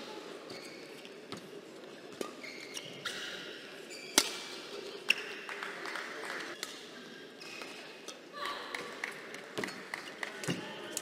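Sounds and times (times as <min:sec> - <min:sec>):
shoes squeaking on court: 0:00.4 - 0:04.5.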